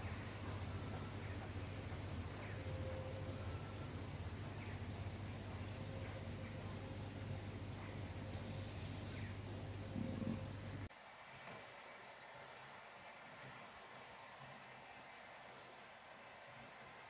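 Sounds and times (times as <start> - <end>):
birds chirping faintly: 0.0 - 10.9.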